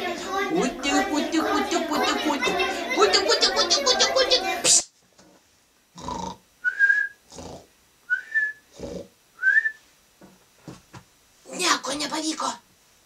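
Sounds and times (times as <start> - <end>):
woman imitating snoring: 6.0 - 6.4, 7.3 - 7.7, 8.7 - 9.1
short rising whistle: 6.7 - 7.2.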